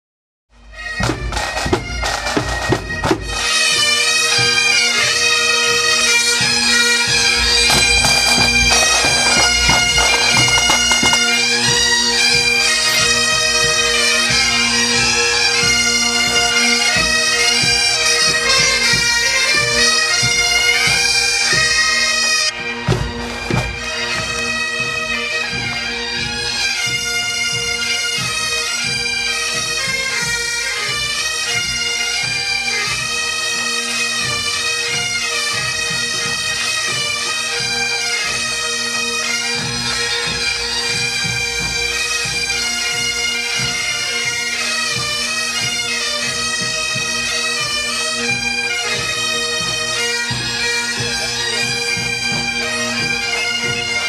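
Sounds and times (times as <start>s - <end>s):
bagpipes playing a tune: 0.6s - 54.0s
drumbeats: 7.0s - 13.3s.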